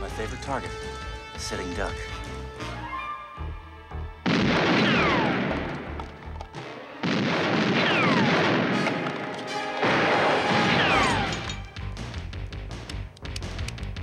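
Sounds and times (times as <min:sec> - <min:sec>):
gunfire bursts: 0:04.3 - 0:06.0, 0:07.0 - 0:11.6.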